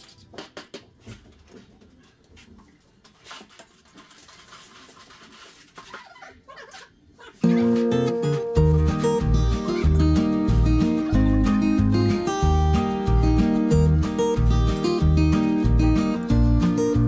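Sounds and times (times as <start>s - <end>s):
loud music: 7.4s - 17.0s.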